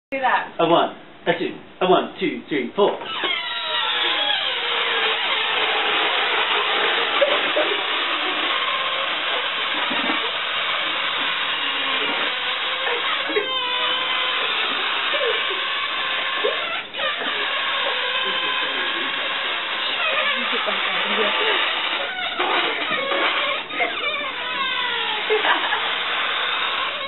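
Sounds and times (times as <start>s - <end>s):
squealing balloon necks: 2.8s - 27.0s
balloons hissing air out: 3.1s - 27.0s.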